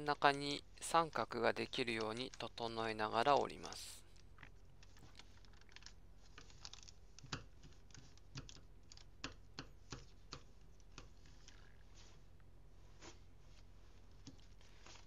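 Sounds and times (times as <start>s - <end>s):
paper being folded and creased: 4.8s - 9.0s, 12.9s - 15.0s.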